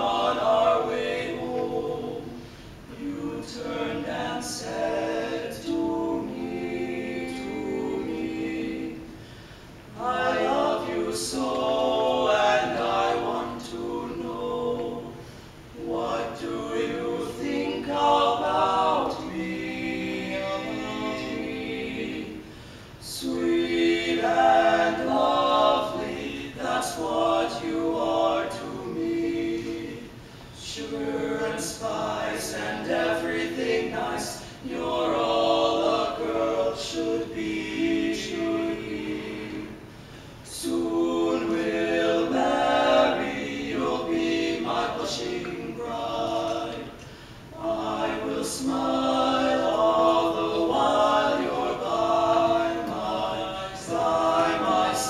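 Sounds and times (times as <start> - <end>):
male quartet singing a cappella: 0.0 - 55.0.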